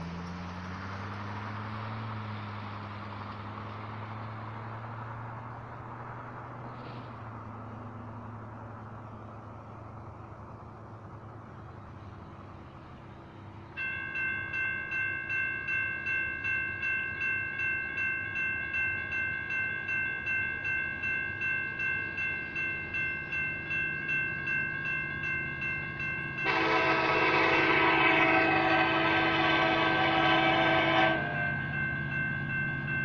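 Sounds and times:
railroad crossing bells ringing: 0:00.0 - 0:33.0
locomotive horn: 0:26.4 - 0:31.7.

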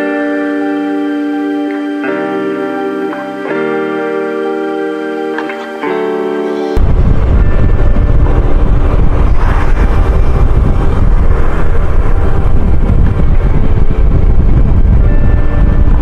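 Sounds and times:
wind rumble on microphone: 0:06.8 - 0:16.0.

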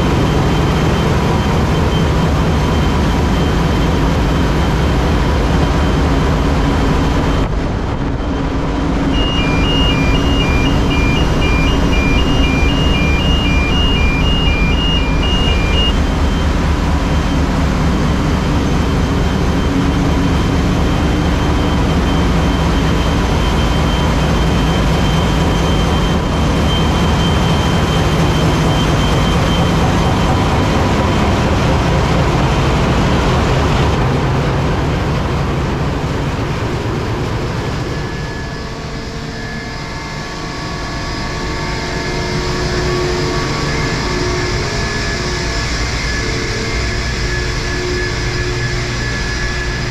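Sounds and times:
engine room machinery: 0:00.0 - 0:49.9
fast electronic beep: 0:09.1 - 0:16.0.

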